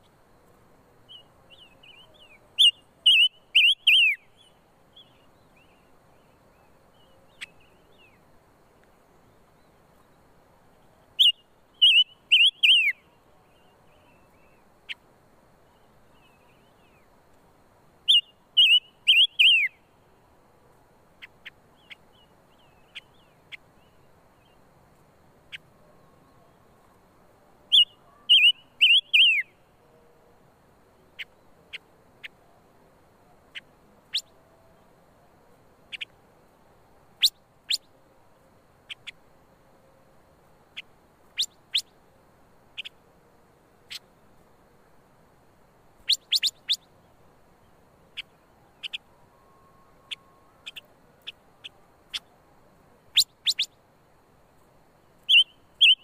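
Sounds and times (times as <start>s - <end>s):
soft bird call notes: 1.0s - 17.1s, 18.0s - 20.0s, 21.2s - 24.6s, 27.6s - 30.3s, 35.9s - 36.2s, 38.8s - 39.2s, 40.7s - 42.0s, 42.7s - 43.0s, 46.0s - 47.0s, 47.6s - 52.4s, 53.0s - 53.8s, 55.0s - 56.0s
bird singing whistled phrases: 1.1s - 5.8s, 11.2s - 14.6s, 18.1s - 19.8s, 27.7s - 29.6s, 46.1s - 46.8s, 55.3s - 56.0s.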